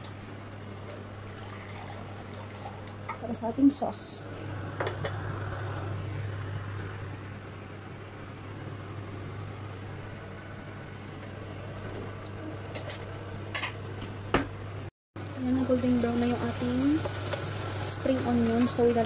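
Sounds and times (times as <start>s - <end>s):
onions sizzling in oil: 15.2s - 19.0s.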